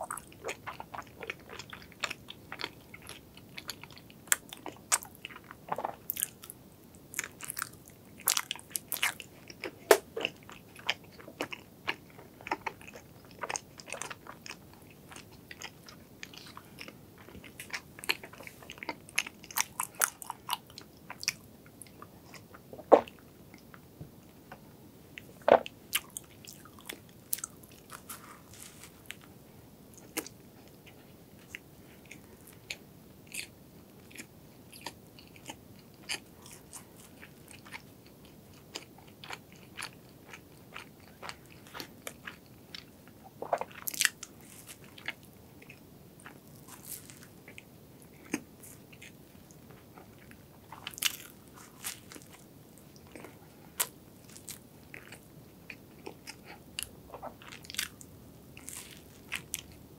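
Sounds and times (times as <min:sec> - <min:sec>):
person chewing with mouth clicks: 0:00.0 - 0:06.6, 0:25.2 - 0:29.3, 0:38.7 - 0:52.4, 0:53.0 - 0:59.8.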